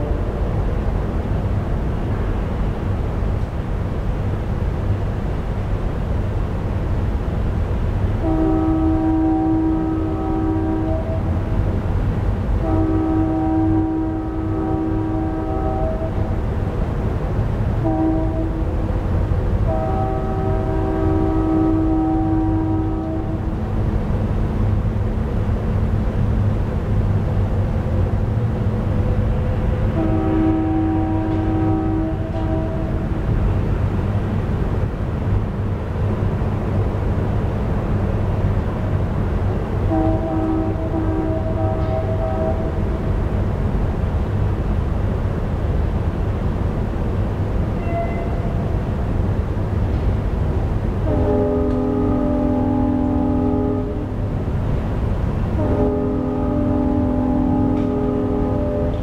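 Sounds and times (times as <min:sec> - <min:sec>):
synthesized train horn blast: 0:00.0 - 0:00.8, 0:08.2 - 0:11.7, 0:12.5 - 0:24.1, 0:27.9 - 0:33.8, 0:39.7 - 0:43.4, 0:47.8 - 0:48.9, 0:51.0 - 0:59.0.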